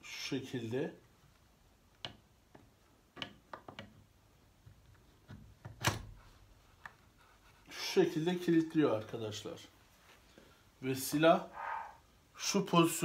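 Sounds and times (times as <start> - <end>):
wood and metal clicks and knocks: 1.9 - 6.1.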